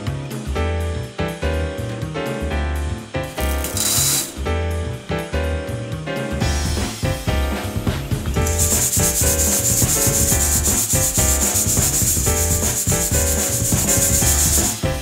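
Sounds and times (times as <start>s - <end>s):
background music with bass beat: 0.0s - 15.0s
coffee beans rattling in roaster: 3.6s - 4.3s, 8.4s - 14.8s.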